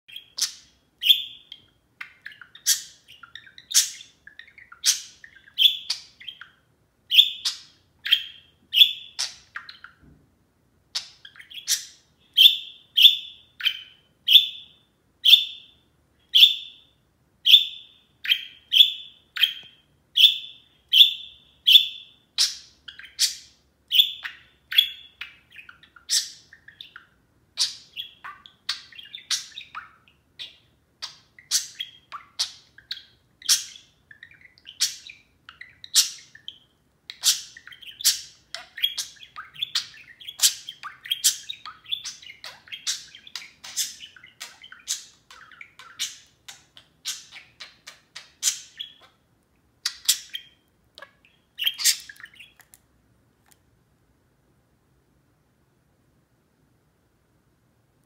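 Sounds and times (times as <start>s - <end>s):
budgerigar calling: 0.1s - 10.0s, 17.5s - 49.2s, 49.8s - 52.6s.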